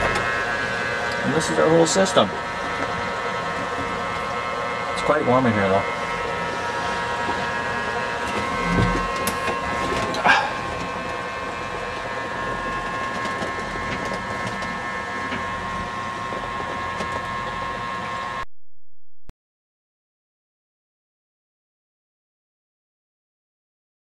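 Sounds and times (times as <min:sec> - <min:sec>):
electric whir with high whine: 0:00.0 - 0:18.5.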